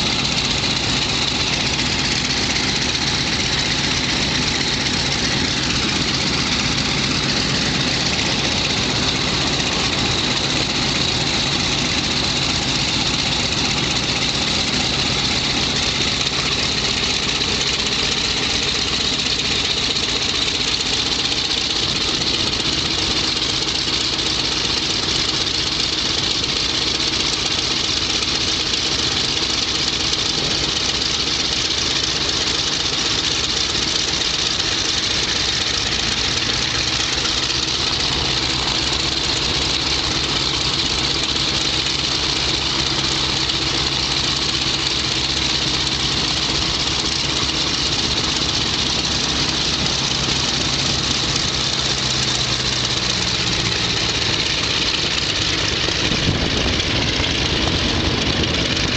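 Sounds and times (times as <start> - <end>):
piston aircraft engines idling: 0.0 - 58.9.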